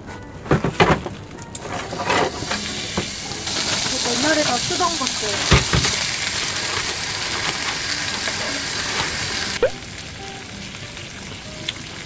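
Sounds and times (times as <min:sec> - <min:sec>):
meat sizzling in grill pan: 0:02.0 - 0:12.0.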